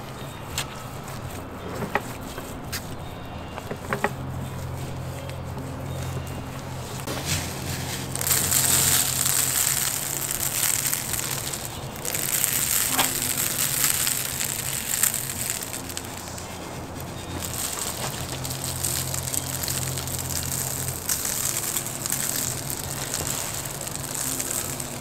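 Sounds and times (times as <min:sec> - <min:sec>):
salt grains falling: 0:06.4 - 0:25.0.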